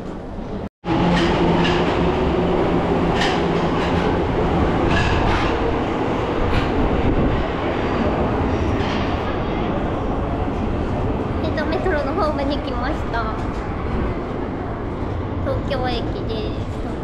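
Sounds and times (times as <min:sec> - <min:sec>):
subway train rumble: 0:00.0 - 0:17.0
wheels clacking over rail joints: 0:01.0 - 0:07.2.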